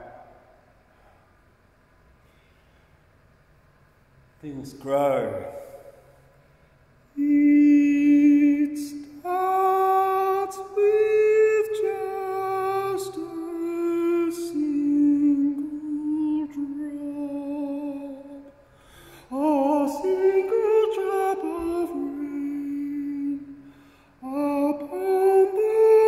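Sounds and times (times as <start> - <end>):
man singing unaccompanied: 7.2 - 18.6, 19.3 - 23.6, 24.2 - 26.0.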